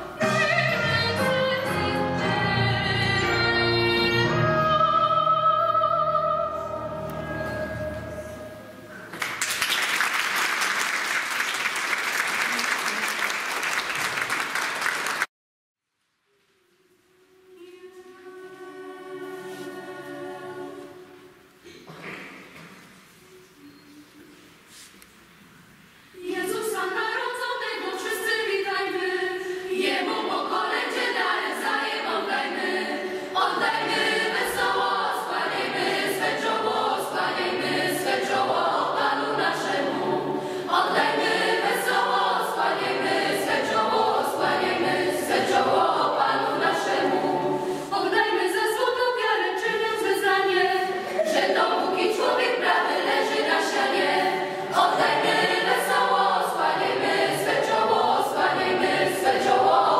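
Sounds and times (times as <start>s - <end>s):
youth choir singing: 17.6s - 21.4s, 26.2s - 59.9s.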